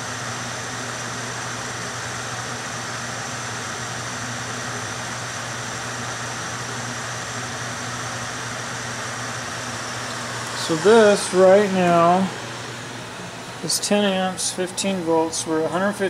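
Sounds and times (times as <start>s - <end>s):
electric blower rushing air: 0.0s - 15.8s
low hum: 9.7s - 15.7s.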